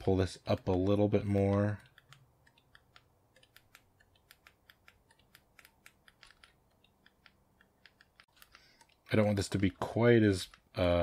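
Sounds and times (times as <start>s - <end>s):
mouse and keyboard clicking: 0.4s - 9.1s.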